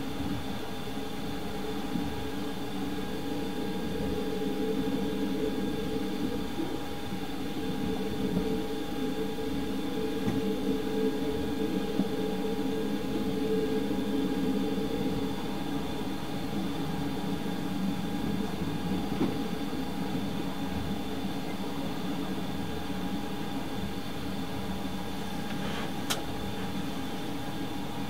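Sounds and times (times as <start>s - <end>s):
constant hum: 0.0s - 28.0s.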